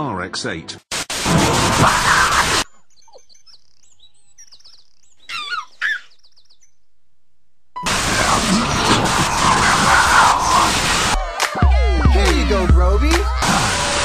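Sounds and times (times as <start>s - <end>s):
loud tv static hiss: 0.9s - 2.6s, 7.8s - 11.5s, 12.2s - 14.0s
birds chirping: 2.1s - 7.2s
bird warbling call: 2.6s - 6.8s.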